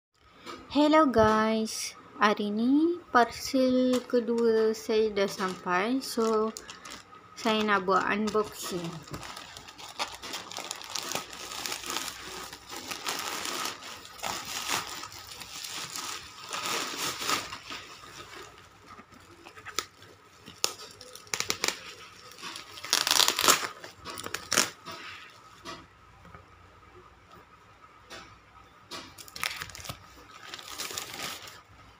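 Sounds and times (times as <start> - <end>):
plastic and bubble wrap crinkling: 3.6 - 25.5, 29.2 - 31.9
plastic mailer tearing: 5.3 - 24.8, 29.2 - 31.7.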